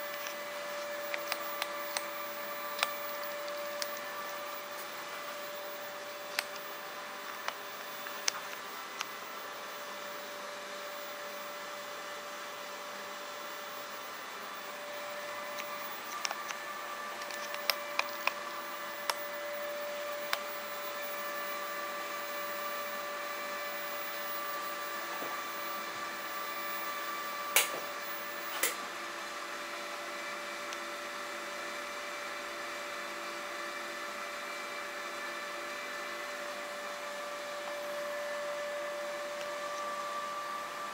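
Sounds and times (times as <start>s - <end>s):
cooling fan whirring: 0.0s - 40.9s
thin electrical whine: 0.0s - 40.9s.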